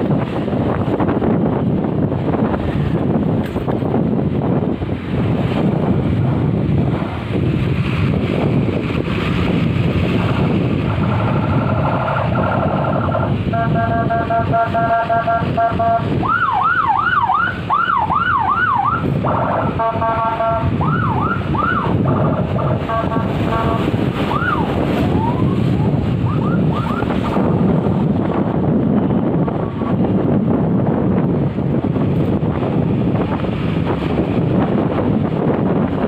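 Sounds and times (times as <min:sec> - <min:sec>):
engine and road noise: 0:00.0 - 0:36.0
multi-tone vehicle horn: 0:10.8 - 0:16.2, 0:19.2 - 0:20.9, 0:21.9 - 0:24.4, 0:26.8 - 0:27.6
whooping siren: 0:10.9 - 0:27.5.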